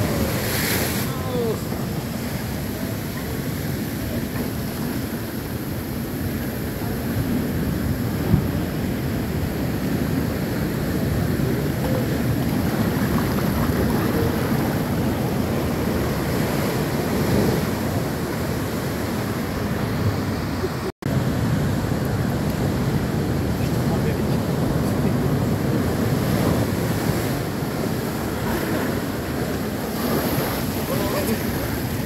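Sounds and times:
surf breaking against sea wall: 9.6 - 20.1.

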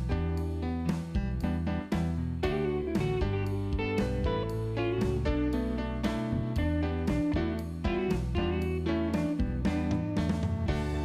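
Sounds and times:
low bass line: 0.0 - 11.0
plucked guitar music: 0.0 - 11.0.

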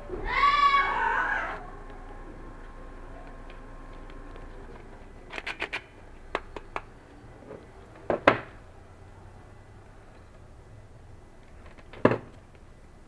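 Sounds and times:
clicks handling metal magazine: 4.0 - 6.9.

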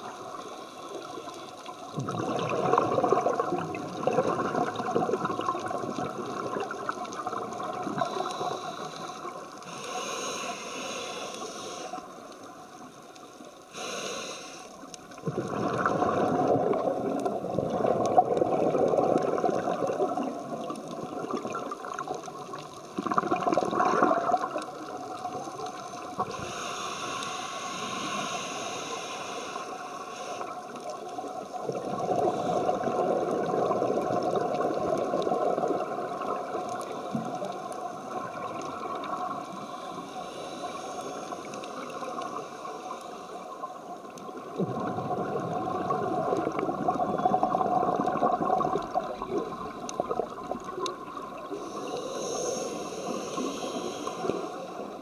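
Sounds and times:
bubbles gurgling: 1.8 - 8.8, 15.1 - 26.5, 30.8 - 40.0, 44.0 - 51.8
diver breathing through regulator: 8.0 - 12.2, 13.7 - 14.8, 26.2 - 30.6, 39.5 - 43.6, 51.5 - 54.9
high hiss: 8.0 - 12.3, 13.7 - 14.9, 26.2 - 30.6, 39.5 - 43.6, 51.4 - 54.9.

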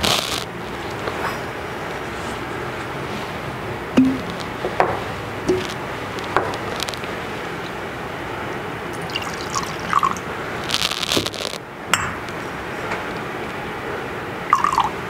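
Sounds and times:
liquid pouring into metal chalice: 9.0 - 10.3, 14.5 - 15.0.

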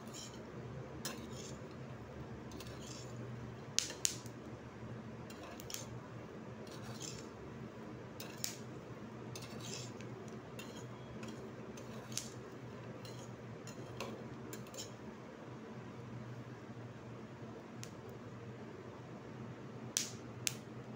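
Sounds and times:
metal spoon scraping pan: 0.0 - 0.4, 1.0 - 1.8, 2.5 - 3.2, 5.2 - 5.9, 6.6 - 7.4, 8.2 - 8.6, 9.3 - 15.0.

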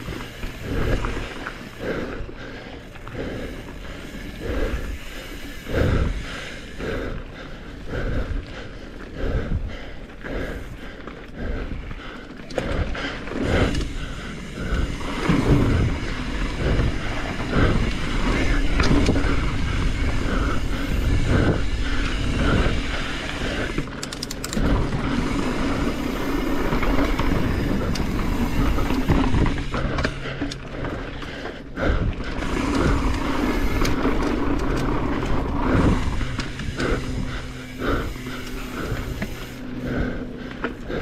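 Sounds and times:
bike rattling: 0.0 - 41.0
bike tyres rumbling on dirt: 0.0 - 41.0
knocks and clicks over bumps: 10.0 - 40.9.

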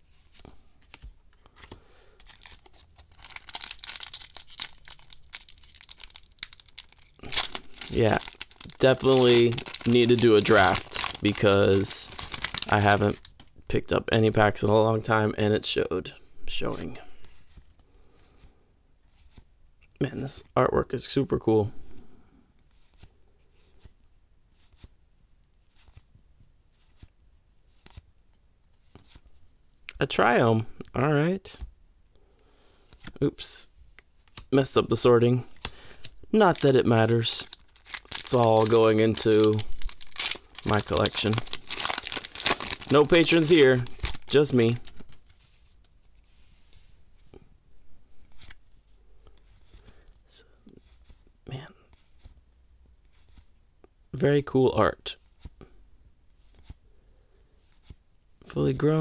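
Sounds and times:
foil wrapper tearing and crinkling: 2.2 - 13.5, 36.5 - 45.4
cards sliding papery swishes: 22.7 - 24.9, 56.4 - 56.8.

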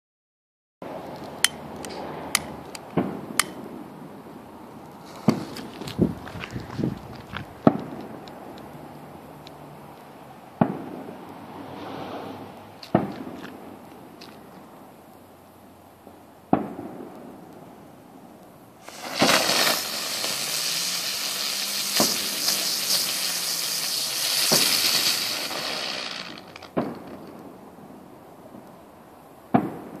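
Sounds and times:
firework cracks: 4.8 - 6.3, 7.4 - 8.7, 10.5 - 14.7, 16.1 - 17.8, 18.8 - 28.8
low background noise: 12.4 - 30.0
spinning firework hissing: 18.7 - 27.6.

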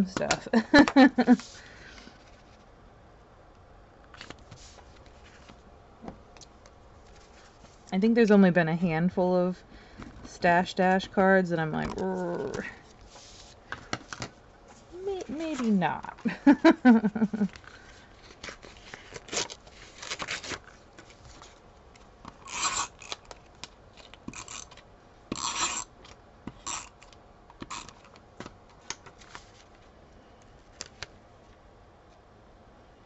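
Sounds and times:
cardstock sliding and rubbing: 12.2 - 13.6.

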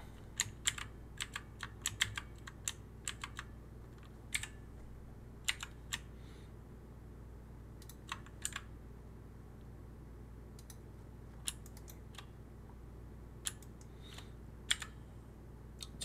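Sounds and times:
steady low hum: 0.0 - 16.0
keyboard and mouse clicks: 7.8 - 8.7, 10.6 - 10.8, 11.4 - 12.3, 13.4 - 15.0.

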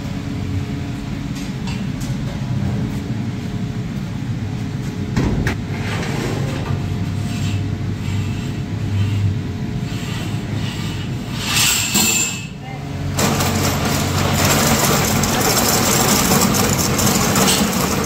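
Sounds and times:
low mechanical hum: 0.0 - 18.0
metal clatter: 13.2 - 18.0.

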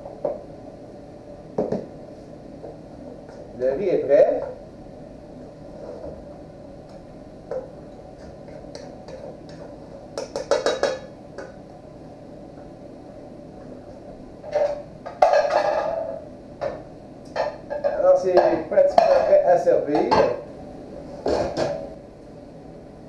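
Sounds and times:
dishes clinking and clattering: 10.2 - 11.1, 14.4 - 19.4.

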